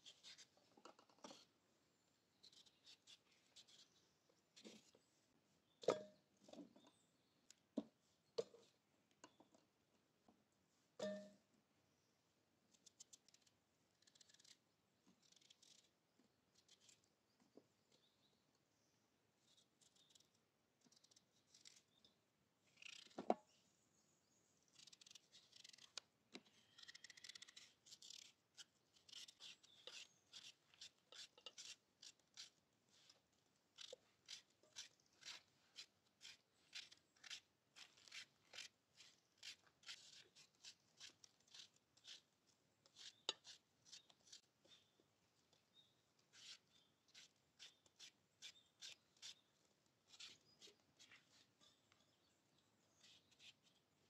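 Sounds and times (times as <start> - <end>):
knife cutting watermelon rind: 26.6 - 44.9, 45.8 - 49.4, 50.1 - 51.6, 52.9 - 53.8.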